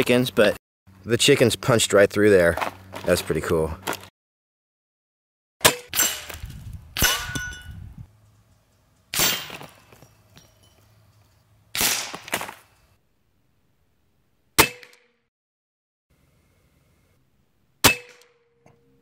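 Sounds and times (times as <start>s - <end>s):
pellets clanging on metal targets: 7.0s - 12.9s.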